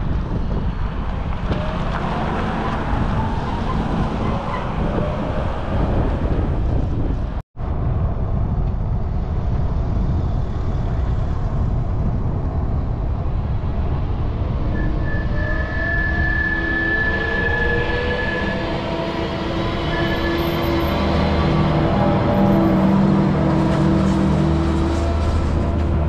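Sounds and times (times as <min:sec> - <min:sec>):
wind rumble on microphone: 0:00.0 - 0:26.0
combine harvester engine: 0:18.5 - 0:26.0.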